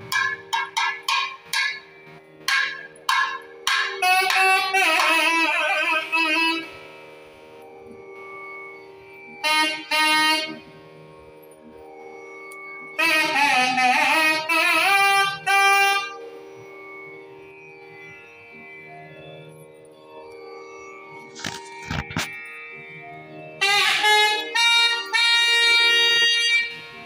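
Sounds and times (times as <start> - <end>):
sharp drum strokes: 0.0 - 1.8
reed pipe melody: 0.0 - 10.8, 11.4 - 17.0, 20.8 - 27.0
steady drone: 0.0 - 27.0.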